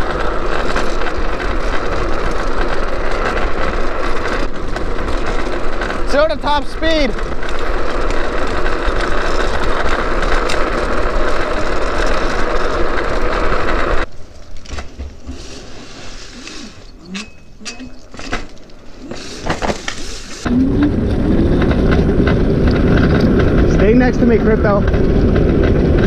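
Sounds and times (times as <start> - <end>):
rushing wind and road noise: 19.4 - 26.0.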